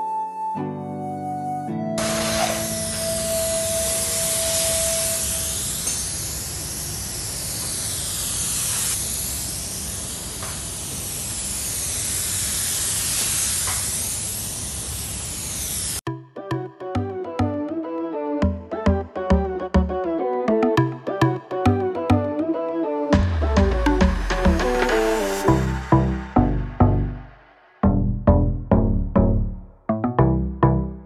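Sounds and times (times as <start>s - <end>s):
spray gun hissing air: 2.0s - 16.0s.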